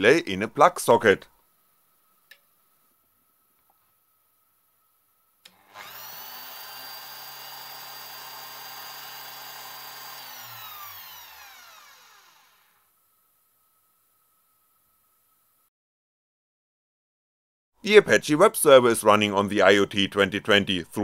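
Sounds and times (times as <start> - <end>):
straight grinder whining: 5.5 - 12.8.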